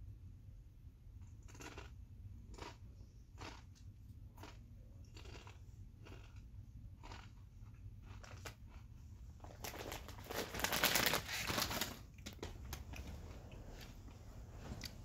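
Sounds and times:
plastic chip bag rustling: 9.4 - 13.1.

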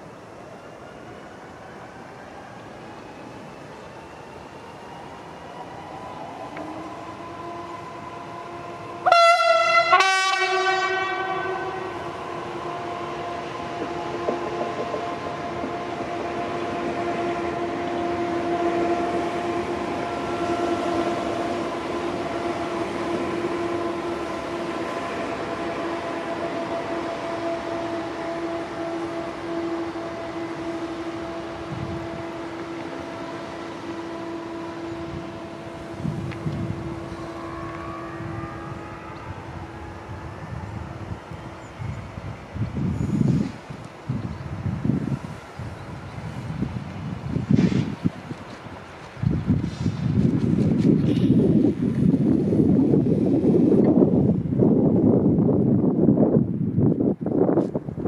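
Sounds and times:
locomotive horn blasts: 7.4 - 41.9.

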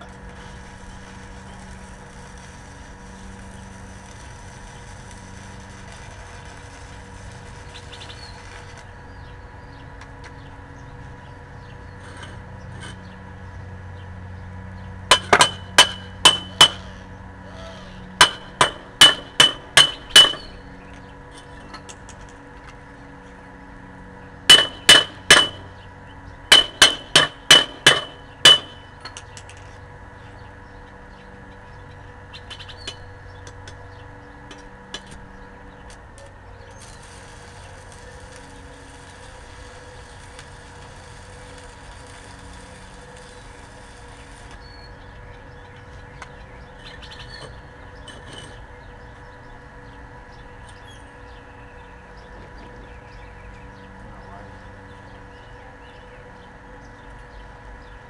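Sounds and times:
welding arc hissing and crackling: 0.0 - 8.9, 17.9 - 20.6, 35.9 - 44.8
chipping hammer tapping metal: 15.1 - 16.8, 18.2 - 20.6, 24.5 - 25.7, 26.5 - 29.3.

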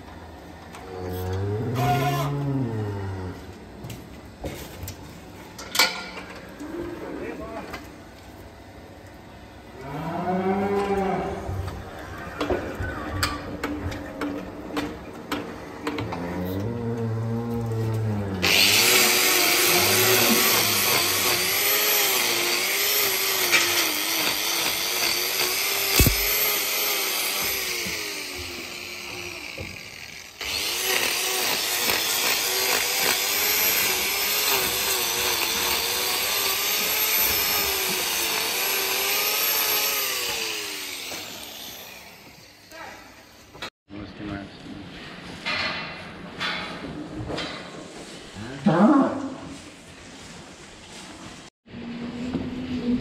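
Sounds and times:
angle grinder grinding hoof: 0.8 - 4.1, 10.5 - 43.7.

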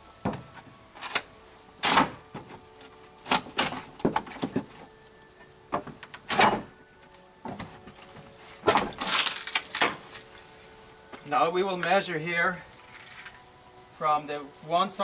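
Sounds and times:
wooden board cracking and creaking: 0.2 - 4.9, 7.4 - 10.3.

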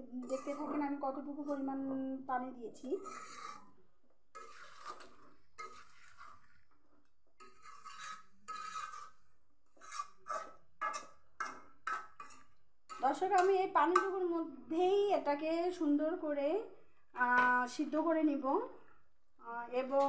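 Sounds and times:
spatula scraping metal pan: 0.2 - 1.0, 2.9 - 6.7, 7.4 - 14.2.

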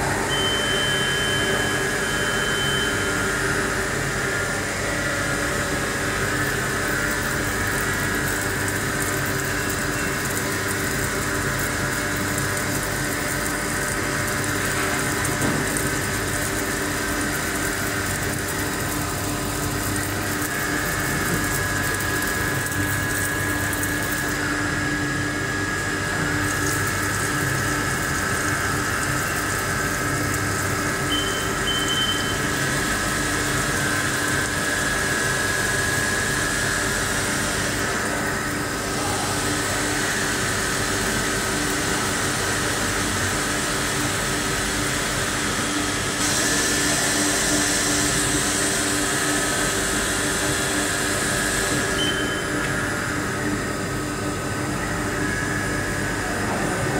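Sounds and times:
machine hum: 0.0 - 56.9
short high beeps: 0.3 - 3.2, 31.1 - 32.4, 52.0 - 52.6.

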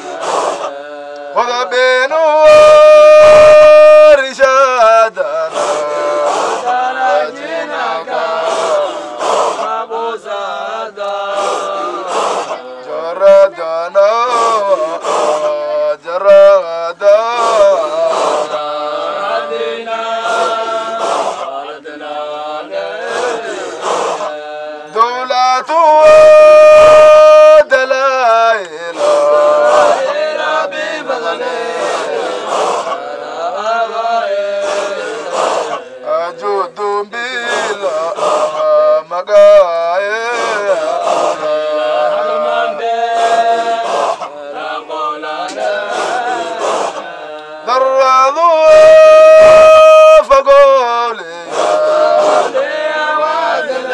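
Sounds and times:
breathy pulses: 0.0 - 0.7, 5.4 - 6.7, 8.2 - 9.7, 11.3 - 12.6, 14.3 - 15.6, 17.2 - 18.6, 20.2 - 21.5, 23.0 - 24.4, 28.8 - 30.1, 31.8 - 33.0, 34.5 - 36.1, 37.4 - 38.7, 40.2 - 41.8, 43.0 - 44.3, 45.6 - 47.1, 51.3 - 52.6
men chanting together: 0.0 - 53.9
man holding loud sung note: 1.8 - 6.7, 25.8 - 30.0, 37.4 - 41.6, 47.8 - 52.6.

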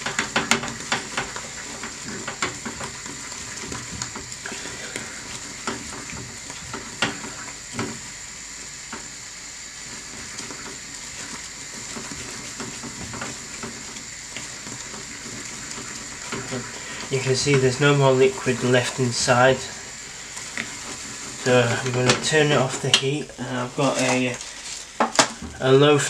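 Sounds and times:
spatula scraping and tapping pan: 0.0 - 8.1, 9.8 - 18.5, 20.2 - 23.0
syrup mixture sizzling in a pan: 0.0 - 26.0.

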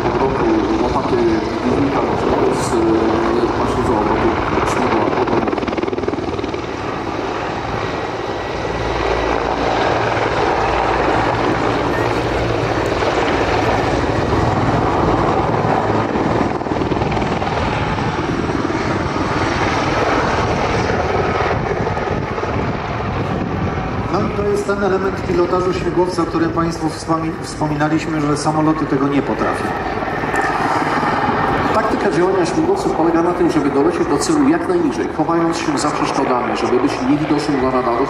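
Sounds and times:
helicopter rotor beat: 0.0 - 38.0
turbine noise: 0.0 - 38.0.

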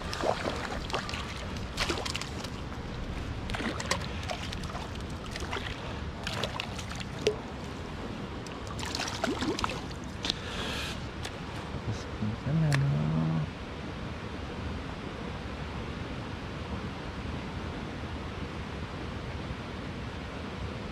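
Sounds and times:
water splashing and trickling: 0.0 - 10.5.

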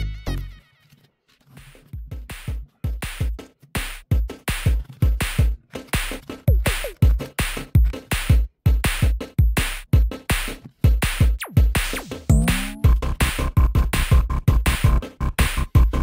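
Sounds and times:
electronic music with drum-machine beat: 1.8 - 16.0
rising synth figure: 12.3 - 12.9.

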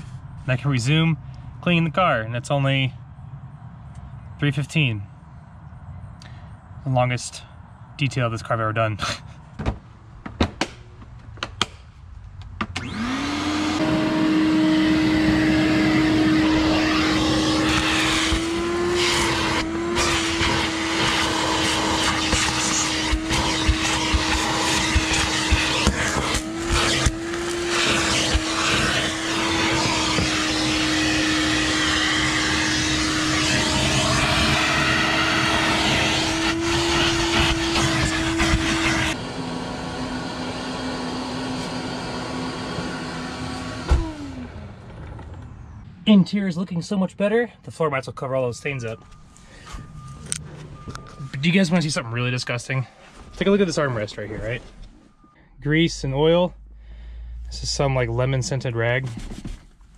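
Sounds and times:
shop vacuum motor whining: 12.6 - 45.4
grit clicking up vacuum hose: 20.0 - 30.7.

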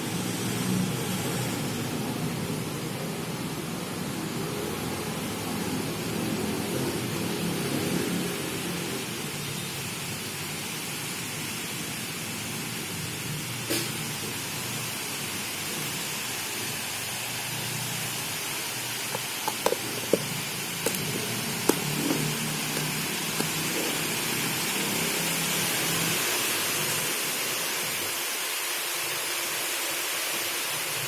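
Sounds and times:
steady hiss: 0.0 - 31.0
plastic lid clicks and taps: 19.2 - 21.1.

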